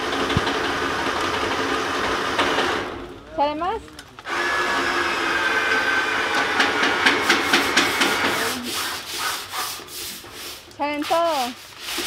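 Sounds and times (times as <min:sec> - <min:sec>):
push broom scrubbing metal sheet: 0:04.4 - 0:12.0.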